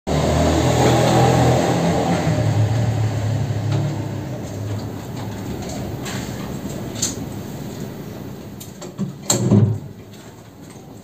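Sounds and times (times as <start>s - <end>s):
motor vehicle engine hum: 0.1s - 8.8s.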